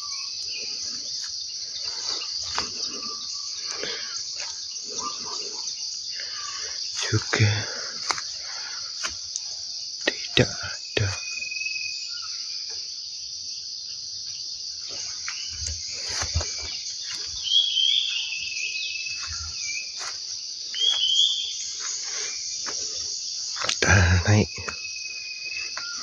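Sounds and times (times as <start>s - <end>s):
bird chirps: 0.0s - 26.0s
insects chirring: 0.0s - 26.0s
footsteps through ground cover: 1.1s - 3.1s, 6.9s - 9.4s, 15.0s - 23.8s.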